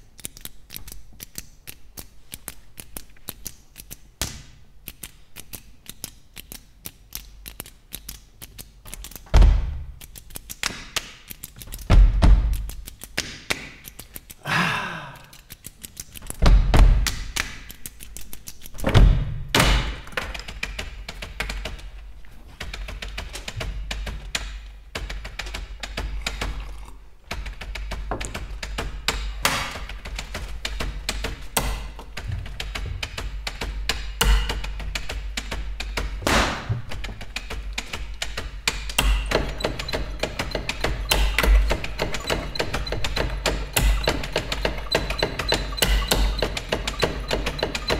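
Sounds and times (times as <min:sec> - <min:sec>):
rhythmic keyboard typing clicks: 0:04.8 - 0:09.3, 0:09.9 - 0:18.8, 0:19.8 - 0:22.0, 0:22.6 - 0:47.9
loud thumps: 0:30.9 - 0:37.2, 0:38.7 - 0:47.9.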